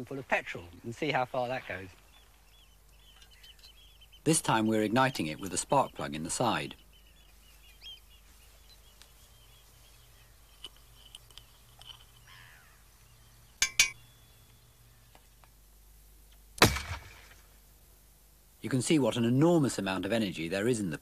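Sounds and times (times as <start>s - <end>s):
metallic clinks: 10.5s - 12.5s, 13.6s - 14.0s
loud bang: 16.6s - 17.4s.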